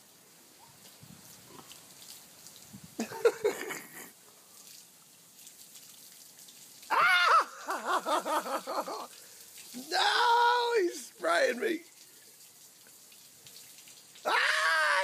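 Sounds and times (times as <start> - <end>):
garden hose spraying water: 0.0 - 15.0
water splattering on stones: 0.7 - 15.0
woman crying out: 6.9 - 8.0.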